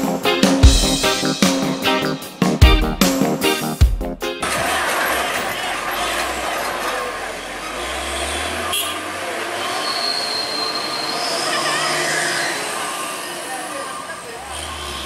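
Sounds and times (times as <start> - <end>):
truck engine rumble: 4.2 - 15.0
road noise: 4.4 - 15.0
thin high squeal: 9.6 - 13.4.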